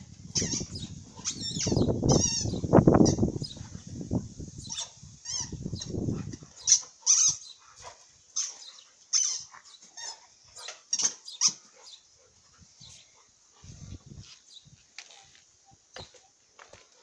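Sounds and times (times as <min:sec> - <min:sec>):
squeaky toy squeaking: 0:00.3 - 0:03.2, 0:04.7 - 0:05.6, 0:06.7 - 0:07.4, 0:08.4 - 0:10.2.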